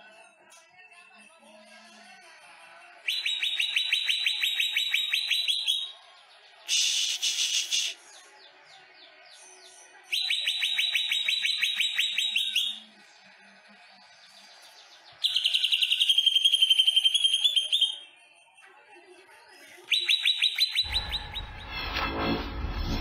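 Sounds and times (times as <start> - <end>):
bird singing rapid repeated notes: 3.0 - 6.0, 9.1 - 12.9, 14.1 - 18.5, 19.8 - 21.7
harsh high bird call burst: 6.7 - 8.0.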